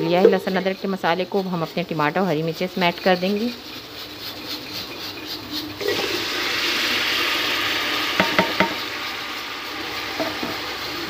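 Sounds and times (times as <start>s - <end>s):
vegetables sizzling in hot oil: 5.0s - 11.0s.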